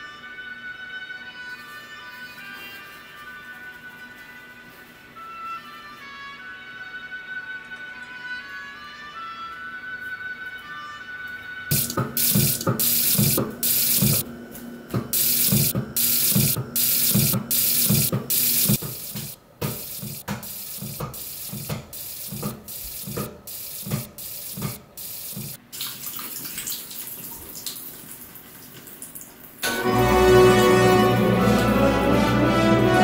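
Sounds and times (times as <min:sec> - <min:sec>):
tap water stuttering: 0:11.7 - 0:14.2, 0:15.0 - 0:25.6.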